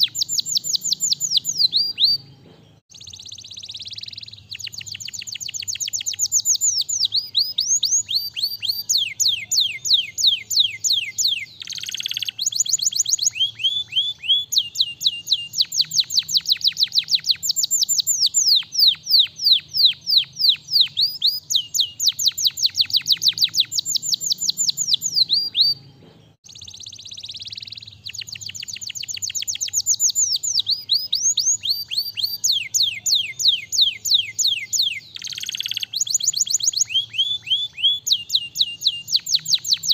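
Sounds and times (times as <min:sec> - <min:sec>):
canary singing fast trills: 0:00.0 - 0:39.9.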